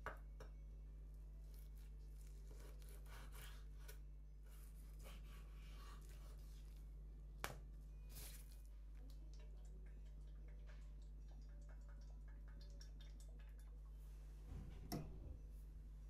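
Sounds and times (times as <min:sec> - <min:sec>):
low steady hum: 0:00.0 - 0:16.0
knife slicing raw meat: 0:02.5 - 0:04.0.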